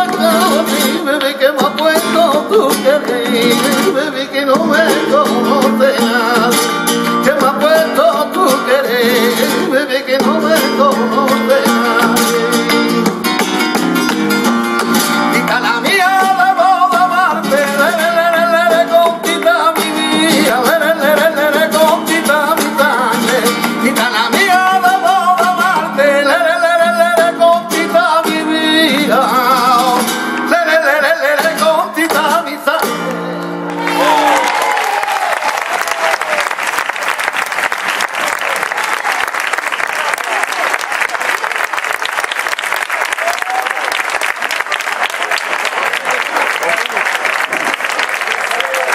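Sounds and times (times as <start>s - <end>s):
rhythmic hand-clapping: 0.0s - 4.0s, 10.4s - 25.9s, 32.0s - 48.9s
man singing: 0.0s - 13.1s, 15.1s - 33.6s
flamenco guitar: 0.0s - 48.9s
audience applause: 33.7s - 48.9s.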